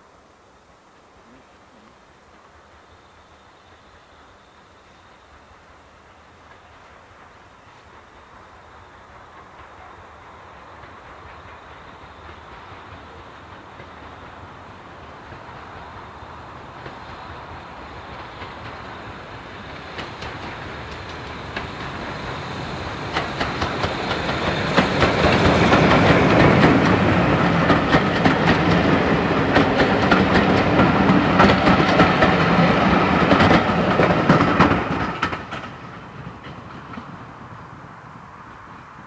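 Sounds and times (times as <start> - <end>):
steam locomotive passing: 0.0 - 39.0
wheels clattering over rail joints: 10.7 - 39.0.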